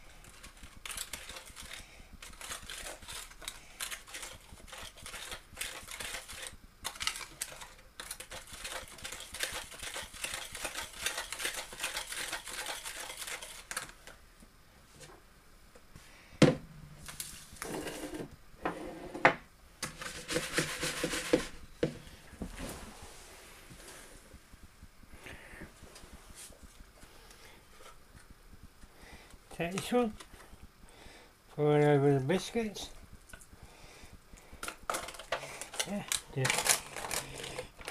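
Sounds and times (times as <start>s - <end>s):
spoon scraping in foil tray: 0.2s - 14.0s, 19.8s - 21.6s, 34.9s - 37.9s.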